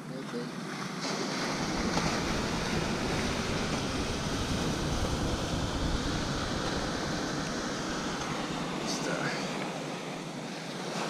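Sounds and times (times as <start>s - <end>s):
ocean surf washing: 0.0s - 11.0s
wind buffeting microphone: 1.0s - 11.0s.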